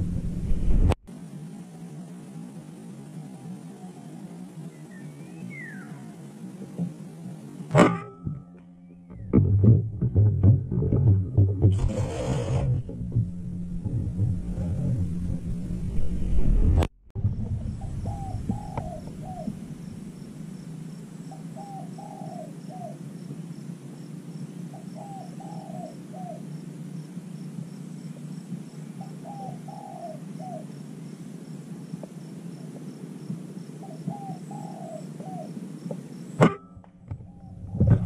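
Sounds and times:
steady low hum: 0.0s - 38.0s
dove cooing: 1.3s - 7.6s, 17.6s - 23.2s, 24.6s - 36.4s, 37.1s - 38.0s.

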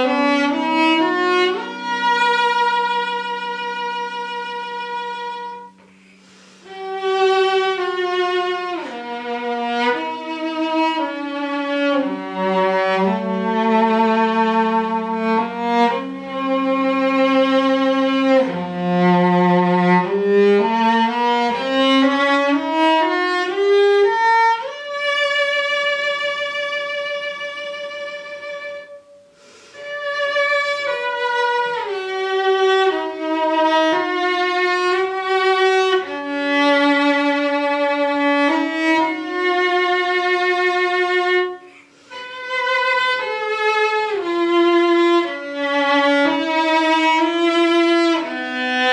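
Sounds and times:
bowed cello melody: 0.0s - 48.9s.

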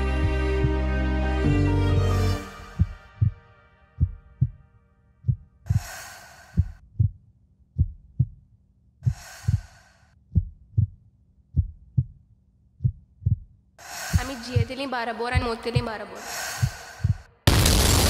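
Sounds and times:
heartbeat double thumps: 2.6s - 3.4s, 4.0s - 4.6s, 5.2s - 12.2s, 12.8s - 16.0s, 16.6s - 17.3s
breath-like hisses: 5.7s - 6.7s, 9.1s - 10.1s, 13.8s - 14.2s, 16.2s - 17.2s.

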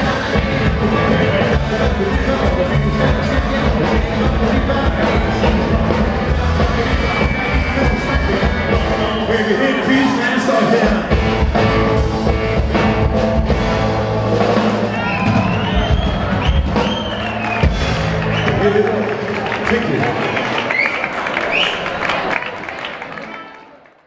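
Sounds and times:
rockabilly band playing live: 0.0s - 19.7s.

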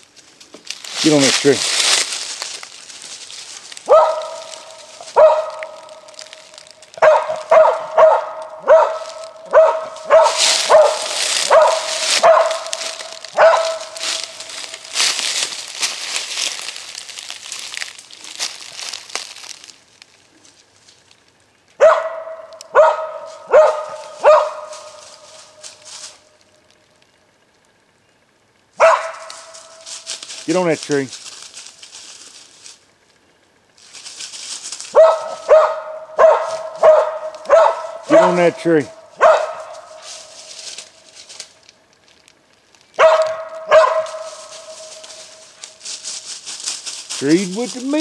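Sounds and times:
dry leaves rustling and crunching: 0.0s - 27.0s, 28.8s - 48.0s
dog barking: 3.8s - 6.1s, 7.0s - 14.2s, 21.8s - 25.4s, 28.8s - 29.8s, 34.9s - 40.0s, 43.0s - 45.1s.

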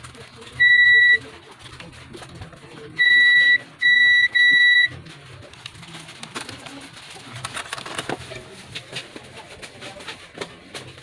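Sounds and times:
multimeter high-pitched beeps: 0.6s - 1.2s, 3.0s - 4.9s.

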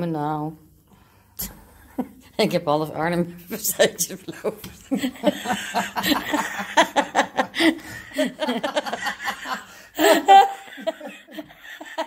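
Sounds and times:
person laughing: 4.4s - 12.0s.

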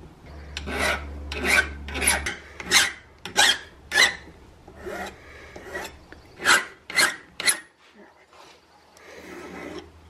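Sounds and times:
file rasping on metal rod: 0.5s - 7.7s, 9.1s - 10.0s.

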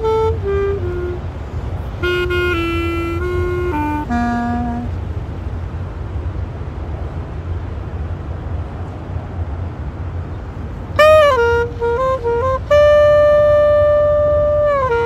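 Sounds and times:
woodwind note bending in pitch: 0.0s - 5.0s, 11.0s - 15.0s
low outdoor rumble: 0.0s - 15.0s.

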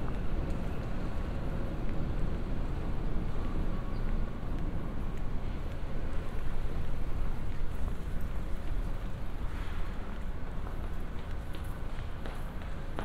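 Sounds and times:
footsteps on paving stones: 0.0s - 13.0s.

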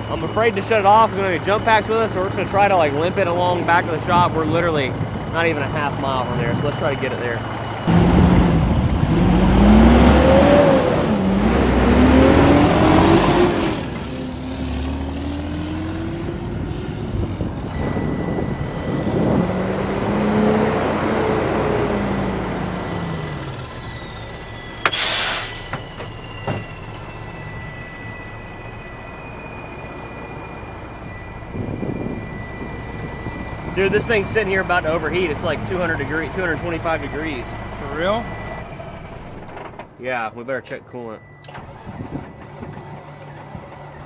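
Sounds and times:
engine whine: 0.0s - 40.0s, 40.7s - 44.0s
truck diesel engine: 0.0s - 44.0s
air brakes hissing: 24.7s - 26.1s.

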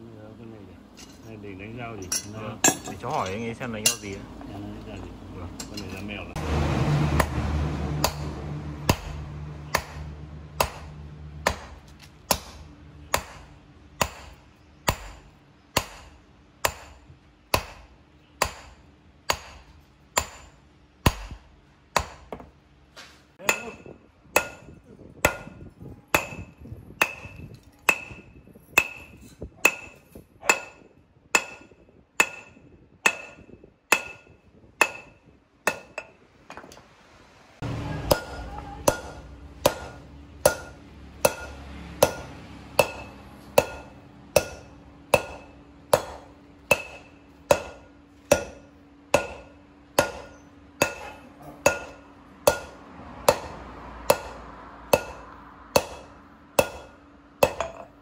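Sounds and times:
hammer blows ringing on anvil: 8.0s - 21.4s, 23.4s - 36.2s, 37.6s - 58.0s
steady machine hum: 37.6s - 58.0s.

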